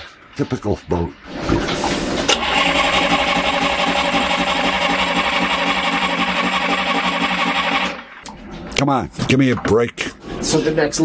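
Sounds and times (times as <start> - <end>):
starter motor cranking diesel engine: 2.2 - 8.1.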